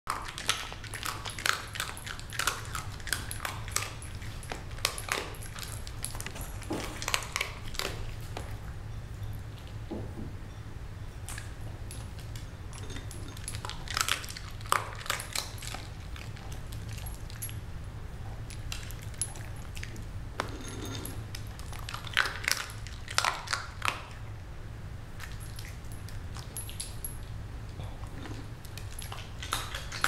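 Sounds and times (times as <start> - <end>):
dog crunching food in bowl: 0.1 - 8.7, 11.3 - 17.7, 18.4 - 24.2, 25.2 - 30.0
steady low hum: 0.1 - 30.0.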